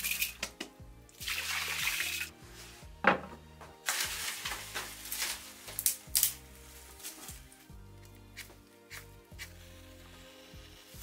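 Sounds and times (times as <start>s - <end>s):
soft background music: 0.0s - 11.0s.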